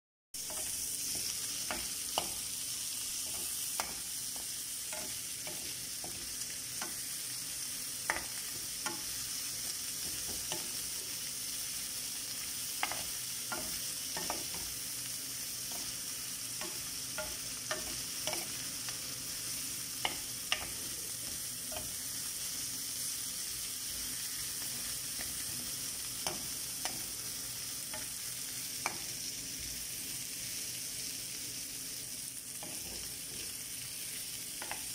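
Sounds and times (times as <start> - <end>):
spatula scraping a pan: 0.4 - 2.5, 3.1 - 7.4
shrimp sizzling in a pan: 0.4 - 34.9.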